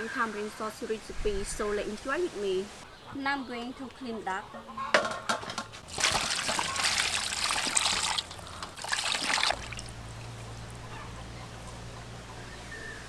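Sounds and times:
water splashing in a metal basin: 5.8s - 10.8s.

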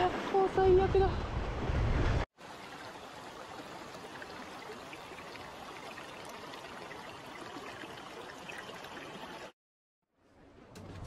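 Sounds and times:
stream water rushing: 2.4s - 9.5s.

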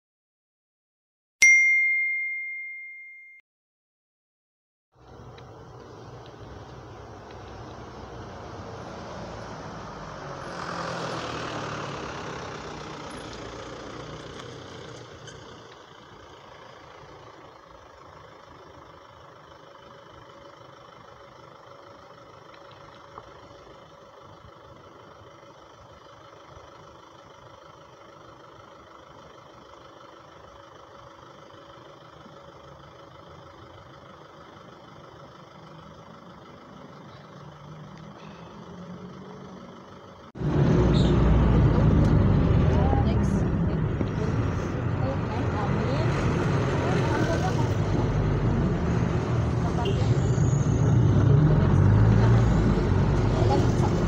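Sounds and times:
vehicle passing: 5.0s - 15.5s, 36.8s - 54.0s
steady engine hum: 5.0s - 54.0s.

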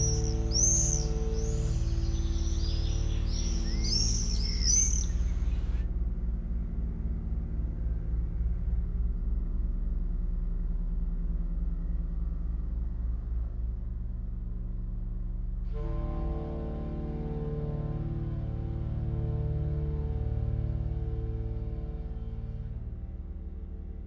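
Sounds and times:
high bird-like chirps: 0.0s - 5.6s
electronic drone with pulsing throb: 0.0s - 24.0s.

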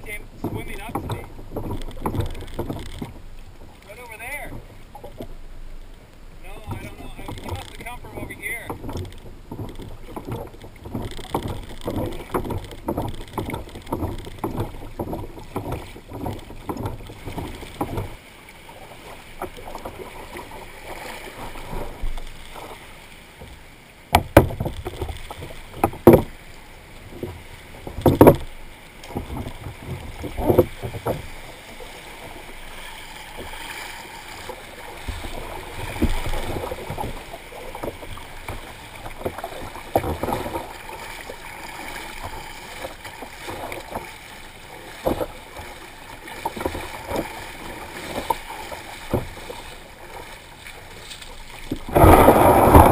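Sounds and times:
knocks on kayak: 0.0s - 3.2s, 6.5s - 18.2s, 23.4s - 26.4s, 27.1s - 31.3s, 48.1s - 49.4s
paddle splashes: 0.0s - 52.9s
water slapping against kayak hull: 0.0s - 52.9s.

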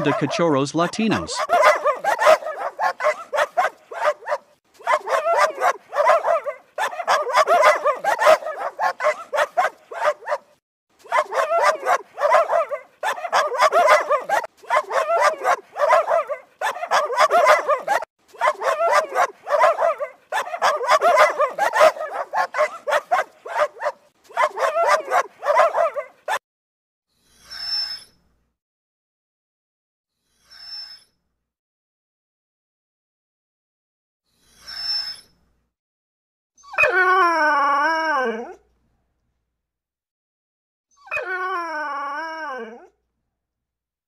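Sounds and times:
dogs barking: 0.0s - 26.4s.

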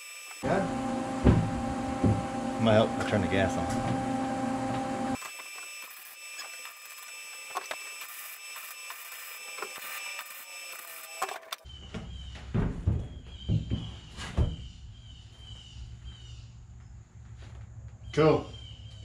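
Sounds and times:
welder high whine: 0.0s - 11.6s
welding arc crackling: 5.2s - 11.7s
knocks: 11.9s - 14.6s.

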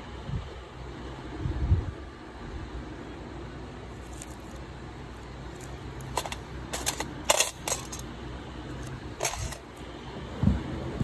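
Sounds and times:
steady low hum: 0.0s - 11.0s
metal instruments clinking: 5.6s - 8.1s, 9.2s - 9.7s.

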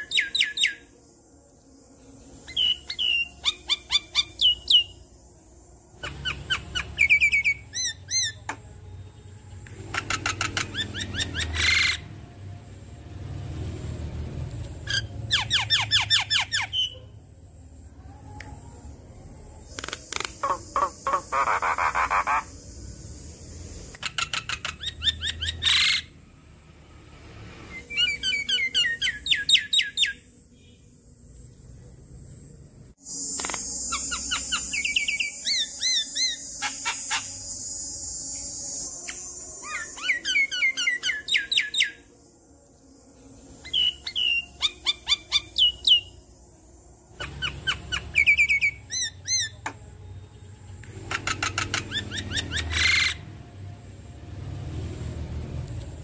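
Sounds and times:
bird chattering song: 9.7s - 12.0s, 19.7s - 22.6s, 23.9s - 26.1s, 33.2s - 37.5s, 50.9s - 53.2s.

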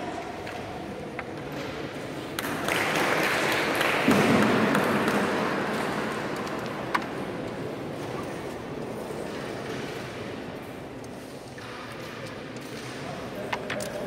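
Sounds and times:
background hall noise: 0.0s - 14.0s.

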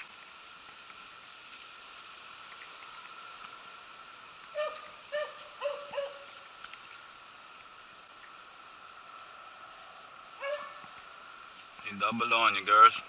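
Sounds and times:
dogs yelping: 4.6s - 6.4s, 10.4s - 10.9s.

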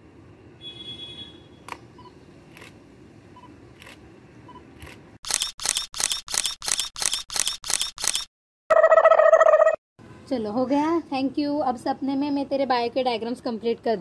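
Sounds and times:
camera shutter clicks: 4.8s - 8.3s.

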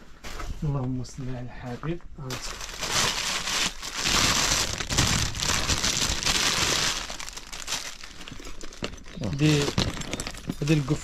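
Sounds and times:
packaging crinkling and rustling: 2.2s - 11.0s.

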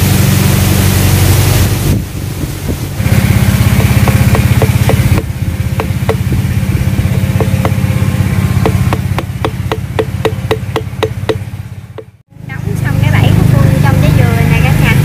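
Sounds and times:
small engine humming: 0.0s - 15.0s
machete tapping on bamboo: 3.8s - 6.3s, 7.4s - 7.8s, 8.6s - 11.4s.

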